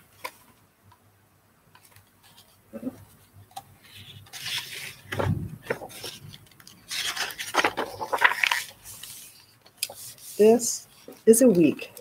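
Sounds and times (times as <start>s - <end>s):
book pages turning: 0.1s - 0.6s, 1.7s - 12.0s.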